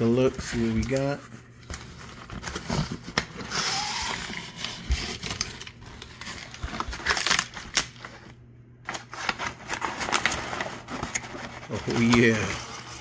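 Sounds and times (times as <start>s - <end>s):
packing paper crinkling: 0.0s - 13.0s
foil liner rustling: 8.9s - 13.0s
cardboard flaps scraping: 9.1s - 13.0s.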